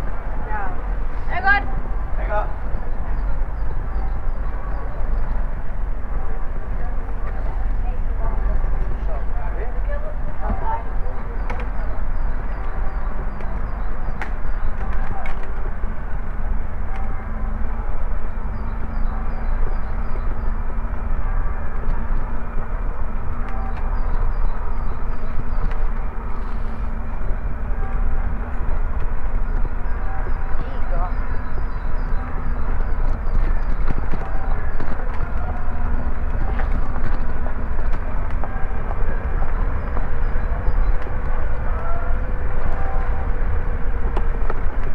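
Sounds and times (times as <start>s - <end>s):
bicycle tyres rolling on bricks: 19.1s - 44.9s.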